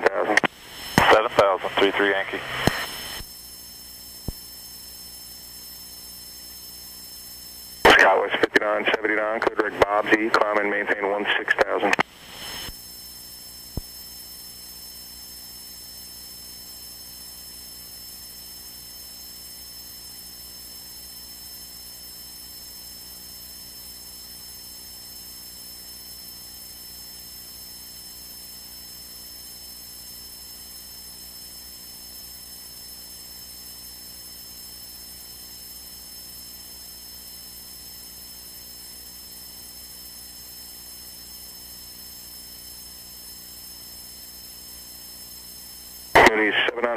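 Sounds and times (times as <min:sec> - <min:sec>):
radio hum and hiss: 0:00.0 - 0:46.9
thin high-pitched whine: 0:00.0 - 0:46.9.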